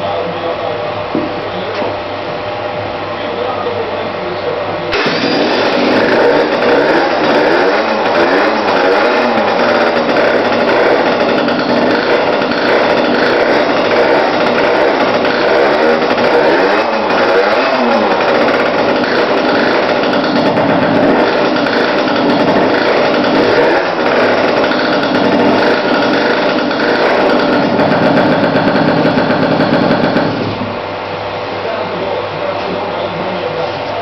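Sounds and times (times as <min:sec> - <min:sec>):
two-stroke engine revving: 0:04.9 - 0:31.4.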